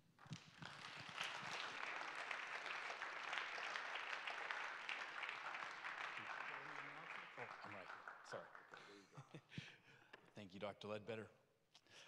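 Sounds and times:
audience applauding: 0:00.2 - 0:09.0.

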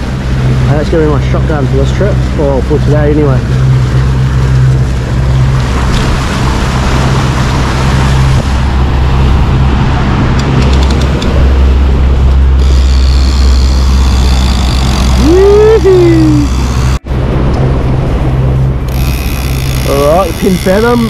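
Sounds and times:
boat engine droning: 0:00.0 - 0:21.0
water rushing: 0:00.0 - 0:21.0
wind: 0:00.0 - 0:21.0
thin high tone: 0:12.6 - 0:17.0.

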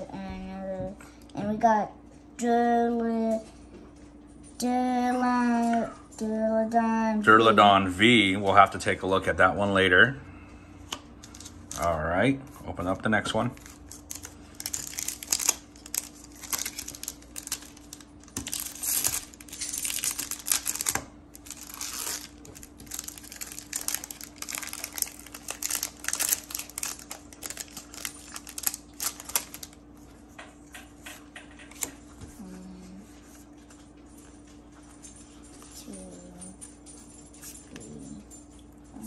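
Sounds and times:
trading cards being handled: 0:10.9 - 0:11.9, 0:13.4 - 0:32.1
foil wrapper crinkling and tearing: 0:11.2 - 0:11.9, 0:13.5 - 0:29.8.

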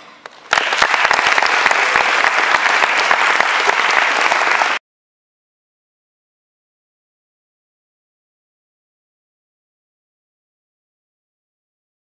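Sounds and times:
audience applauding: 0:00.2 - 0:04.8.

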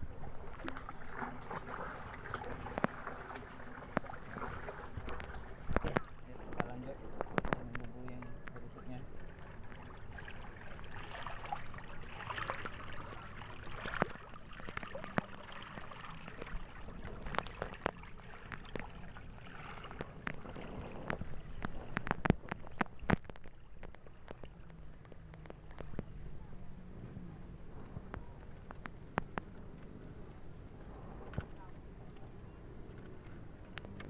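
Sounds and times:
water sloshing and splashing: 0:00.0 - 0:26.9, 0:27.5 - 0:34.0
sharp clicks and knocks: 0:19.9 - 0:26.2, 0:28.0 - 0:29.9.

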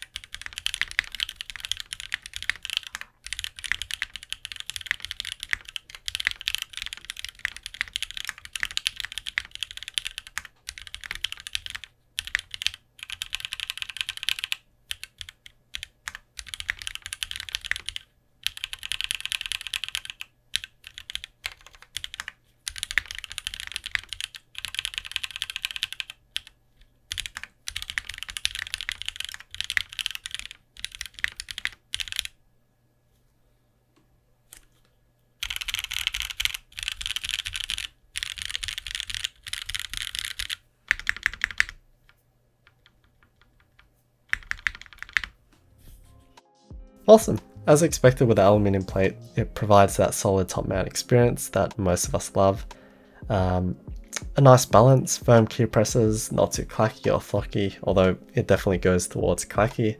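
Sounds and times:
fast typing on mechanical keyboard: 0:00.0 - 0:32.4, 0:35.4 - 0:41.8, 0:42.6 - 0:45.4.

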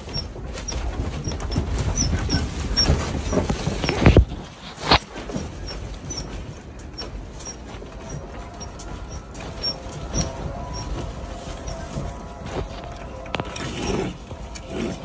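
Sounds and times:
window and frame rattling: 0:00.0 - 0:15.0
faint high squeak: 0:07.0 - 0:12.1.

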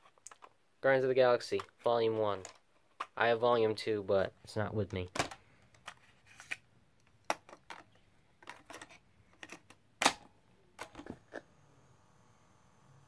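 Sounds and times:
cassette door snapped shut: 0:10.0 - 0:11.0.

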